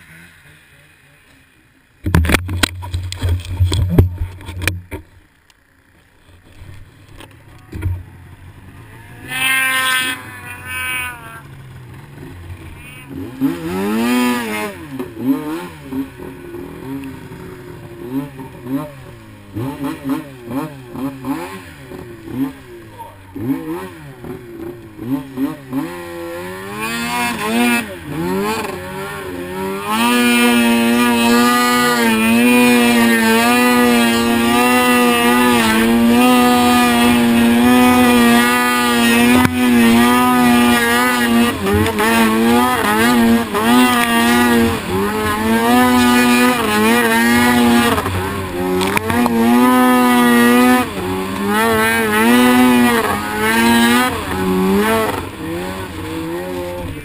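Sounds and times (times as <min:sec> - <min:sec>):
snowmobile engine revving: 0:00.0 - 0:02.0, 0:05.6 - 0:57.0.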